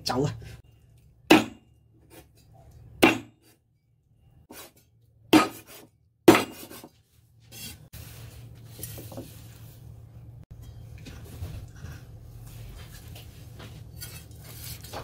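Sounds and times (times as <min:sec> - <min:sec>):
cleaver chopping on wooden board: 0:01.3 - 0:01.6, 0:03.0 - 0:03.4, 0:05.3 - 0:06.7
scraping onto ceramic plate: 0:13.8 - 0:15.0.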